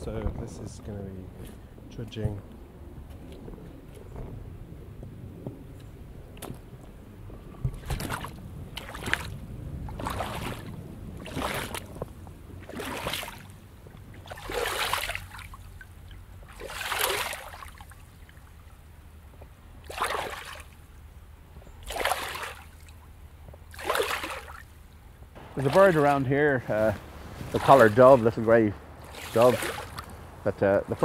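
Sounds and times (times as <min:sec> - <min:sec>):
flowing river water: 0:05.8 - 0:31.0
boots splashing through water: 0:07.7 - 0:18.6, 0:19.8 - 0:20.8, 0:21.8 - 0:24.8, 0:25.4 - 0:30.3.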